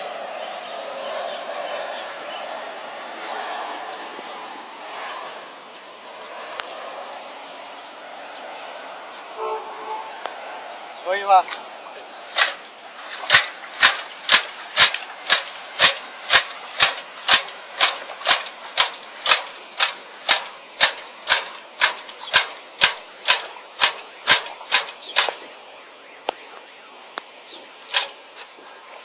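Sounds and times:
hand tool knocking: 0:13.3 - 0:25.4.

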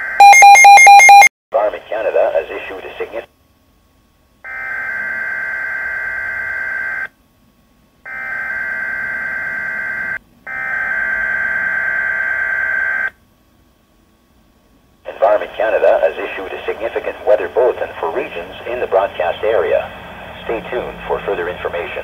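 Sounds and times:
warbling data tones from radio: 0:15.1 - 0:22.0.

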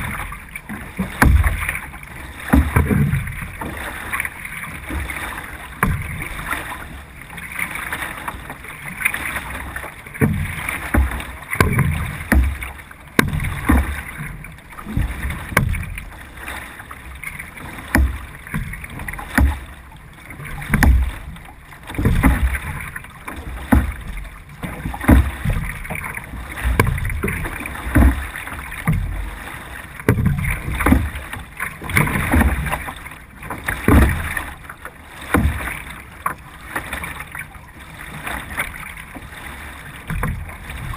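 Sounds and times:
paddle splashing in water: 0:00.0 - 0:40.9
water rushing along hull: 0:00.0 - 0:40.9.

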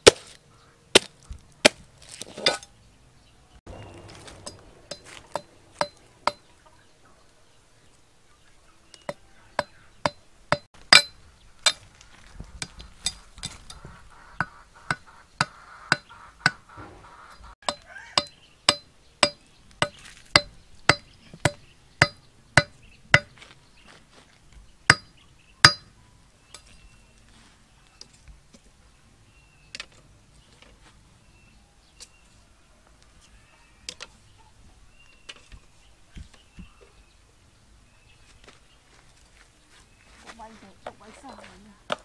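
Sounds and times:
knife chopping bamboo: 0:00.0 - 0:02.5.

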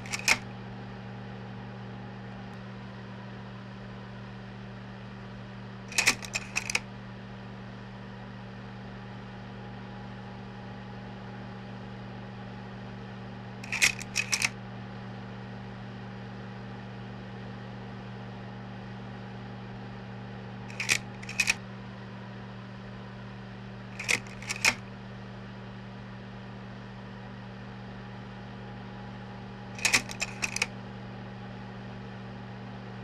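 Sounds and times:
sharp mechanical clicks: 0:00.0 - 0:00.4, 0:05.9 - 0:06.8, 0:13.6 - 0:14.5, 0:20.7 - 0:21.6, 0:24.0 - 0:24.8, 0:29.8 - 0:30.7
projector humming: 0:00.0 - 0:00.6, 0:05.9 - 0:06.8, 0:13.6 - 0:14.5, 0:20.7 - 0:21.6, 0:24.0 - 0:24.8.

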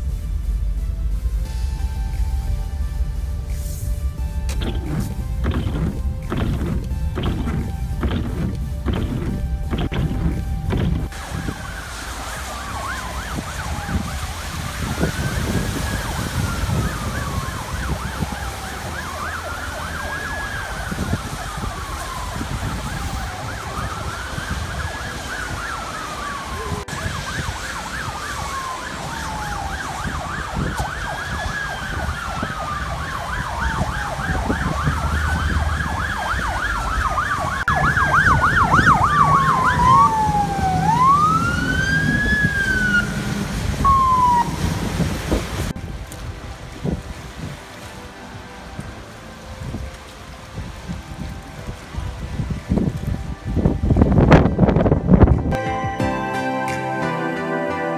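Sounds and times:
emergency siren wailing: 0:01.4 - 0:55.6
siren yelping: 0:04.4 - 0:45.0.

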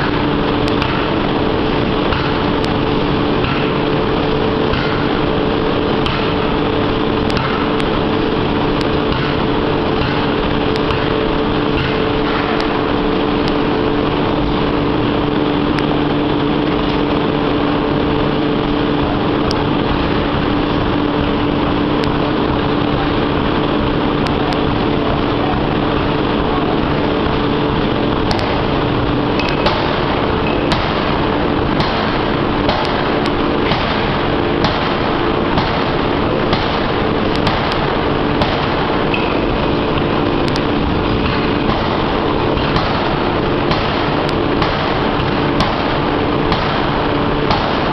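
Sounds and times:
hammer ram striking hot steel: 0:00.0 - 0:14.8, 0:28.2 - 0:47.9
forging hammer mechanical drone: 0:00.0 - 0:47.9.

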